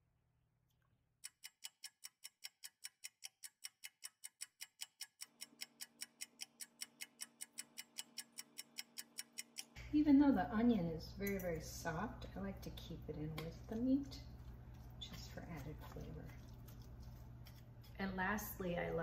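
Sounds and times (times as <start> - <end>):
clock ticking rapidly: 1.2 - 9.8
low steady hum: 7.2 - 19.0.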